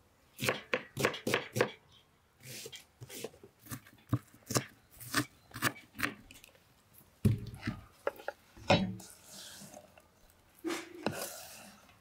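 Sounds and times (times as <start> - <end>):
onion sliding into bowl: 10.6 - 11.9.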